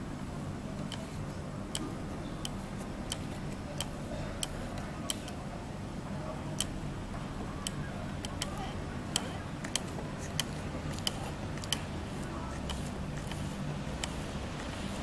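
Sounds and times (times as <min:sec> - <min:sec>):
sharp clicks: 0:01.7 - 0:05.4, 0:06.6 - 0:06.8, 0:07.6 - 0:14.2.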